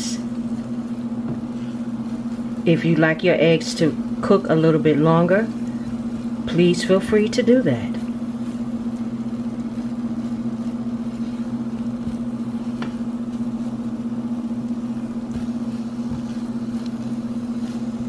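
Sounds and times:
low electrical hum: 0.0 - 18.0
spatula tapping skillet: 5.0 - 18.0.

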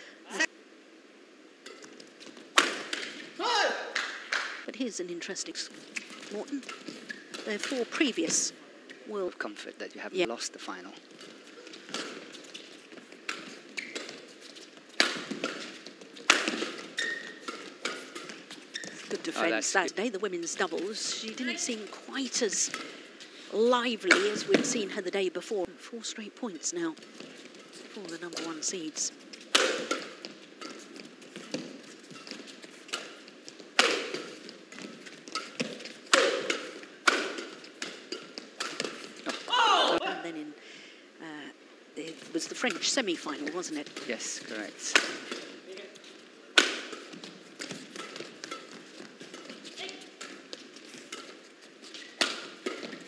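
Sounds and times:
racket striking shuttlecock: 1.6 - 3.3, 11.2 - 12.4, 14.9 - 19.2, 24.0 - 24.8, 29.4 - 40.0, 42.6 - 45.6, 46.5 - 53.0
court shoes squeaking: 5.7 - 9.0, 10.8 - 25.0, 26.7 - 40.0, 42.1 - 53.0.

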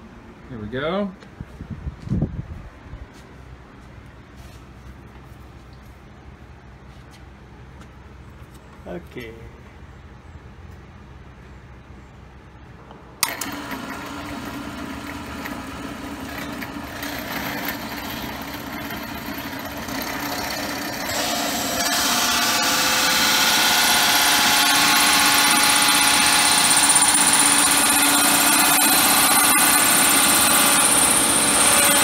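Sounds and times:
drill press running: 13.2 - 32.0
hole saw cutting cymbal: 13.2 - 32.0.

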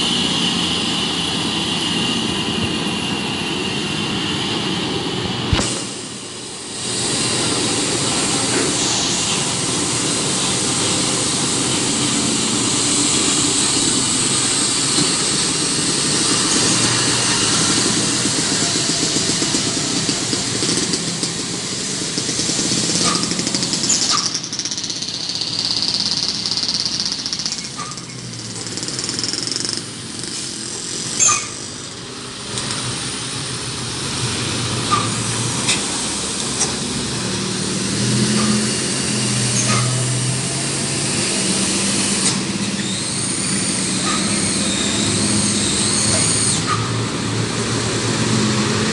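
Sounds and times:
diesel trucks running: 0.0 - 48.9
passing motorcycles: 0.0 - 48.9
traffic rumble: 0.0 - 48.9
high hiss: 4.7 - 20.6.

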